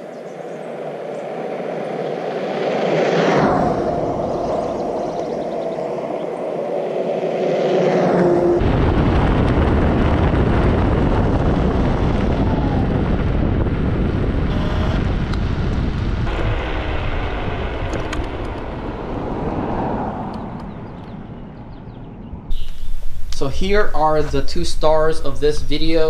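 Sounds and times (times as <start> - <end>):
steady whine: 0.0 - 26.0
wind buffeting microphone: 0.0 - 26.0
tyre and road rumble: 7.9 - 23.4.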